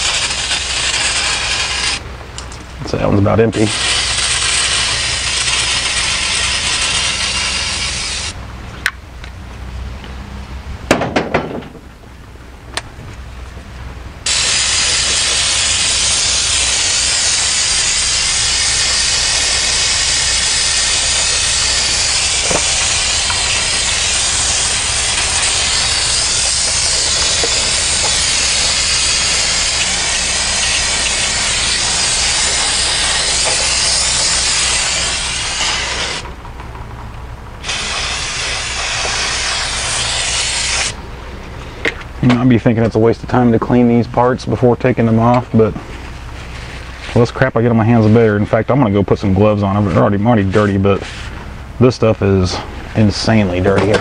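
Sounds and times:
aerosol can spraying hiss: 0:00.0 - 0:02.0, 0:03.7 - 0:08.4, 0:14.3 - 0:36.2, 0:37.6 - 0:41.0
sharp knocks: 0:10.9 - 0:11.8.

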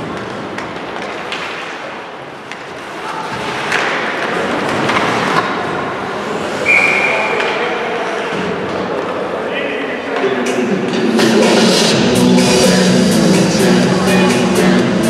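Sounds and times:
sticks and puck clacking: 0:00.0 - 0:06.5, 0:07.2 - 0:09.3
skates scraping ice: 0:00.0 - 0:09.3
referee's whistle blast: 0:06.6 - 0:07.3.

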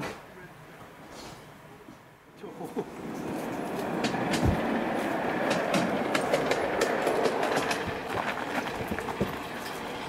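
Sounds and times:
steel wheels rolling on track: 0:02.8 - 0:10.0.

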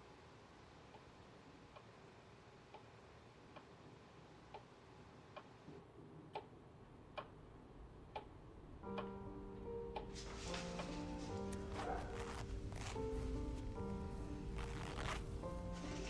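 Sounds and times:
clock ticking: 0:06.2 - 0:10.1.

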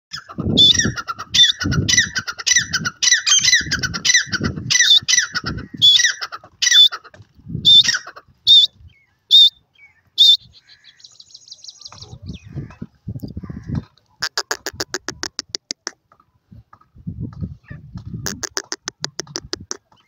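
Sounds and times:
francolin calling: 0:07.7 - 0:12.8.

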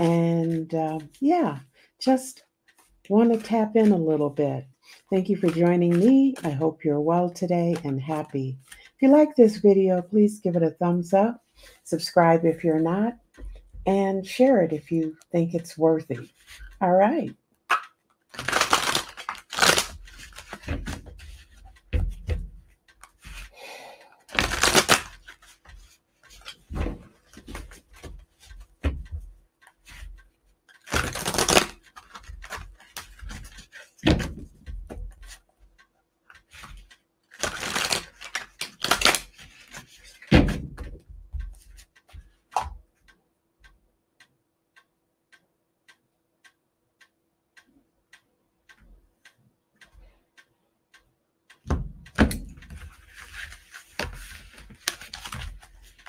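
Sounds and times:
cards being shuffled: 0:00.0 - 0:01.7, 0:02.6 - 0:06.7, 0:07.4 - 0:08.9, 0:16.2 - 0:23.6, 0:24.3 - 0:35.4, 0:36.4 - 0:42.8, 0:51.7 - 0:56.0
faint steady ticking: 0:00.0 - 0:56.0.

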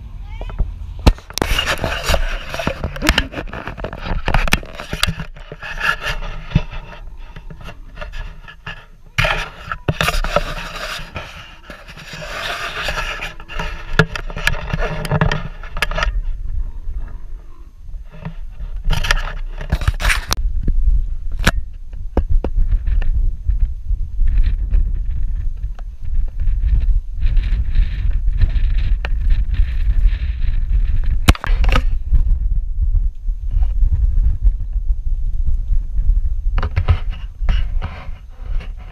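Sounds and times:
low rumble: 0:00.0 - 0:08.4, 0:20.3 - 0:38.9
camera handling noise: 0:01.1 - 0:16.2.

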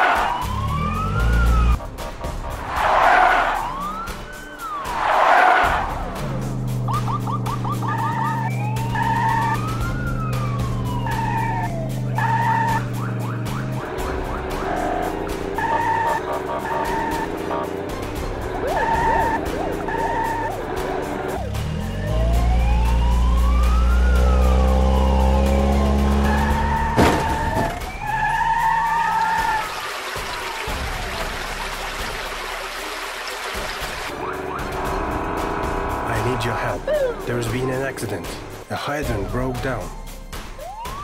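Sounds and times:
police siren: 0:00.0 - 0:01.8, 0:03.0 - 0:06.0, 0:06.8 - 0:29.8, 0:34.1 - 0:36.1, 0:39.8 - 0:41.0
engine hum: 0:00.0 - 0:41.0.

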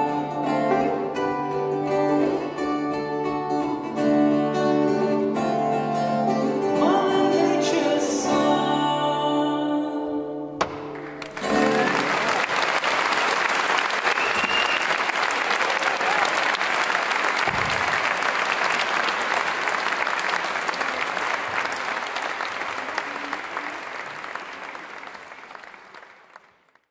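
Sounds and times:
audience applauding: 0:10.8 - 0:26.9.

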